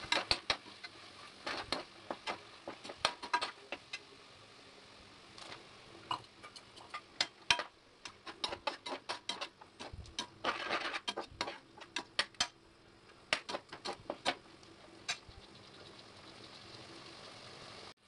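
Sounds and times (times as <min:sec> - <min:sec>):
metal spatula scraping a pot: 0:00.0 - 0:03.6, 0:06.1 - 0:12.5.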